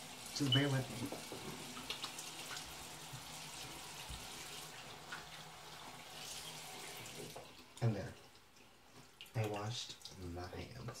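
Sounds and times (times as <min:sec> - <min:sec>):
water running from a tap: 0:00.0 - 0:08.6.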